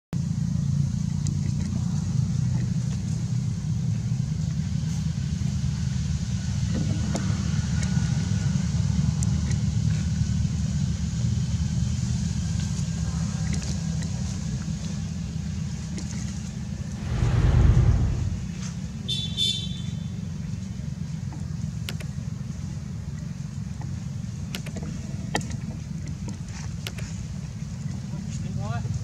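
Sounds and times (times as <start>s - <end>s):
steady low rumble: 16.8s - 19.0s.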